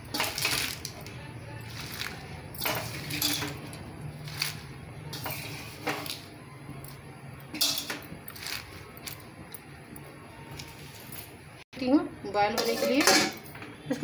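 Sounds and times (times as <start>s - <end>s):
leaves rustling and squishing: 1.6s - 4.7s, 8.3s - 9.2s.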